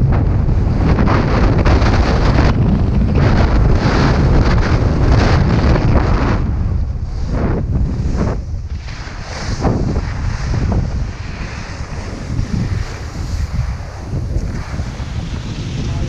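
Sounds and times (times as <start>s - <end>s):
wind buffeting microphone: 0.0s - 16.0s
skis sliding over snow: 8.8s - 16.0s.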